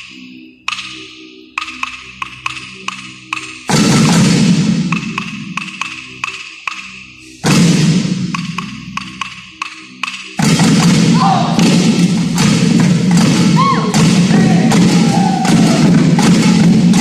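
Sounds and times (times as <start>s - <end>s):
loud drum hit: 3.7s - 5.4s, 7.4s - 8.6s, 10.4s - 17.0s
group drumming: 3.7s - 6.0s, 7.4s - 9.0s, 10.4s - 17.0s.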